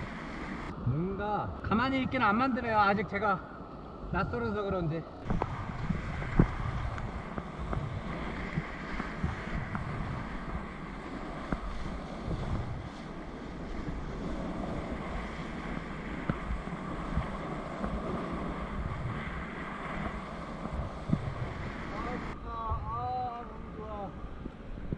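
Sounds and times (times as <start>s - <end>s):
wind noise on microphone: 5.2s - 24.9s.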